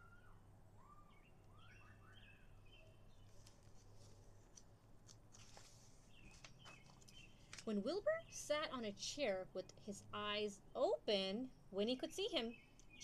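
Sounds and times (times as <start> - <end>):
faint bird chirps: 0.0 - 4.3, 12.4 - 13.0
book pages rustling: 3.2 - 7.8.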